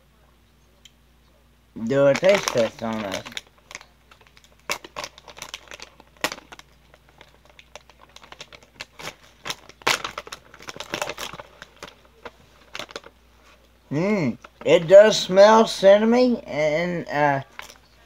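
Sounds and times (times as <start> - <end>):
snack pouch crinkling: 1.8 - 13.8, 17.4 - 18.0.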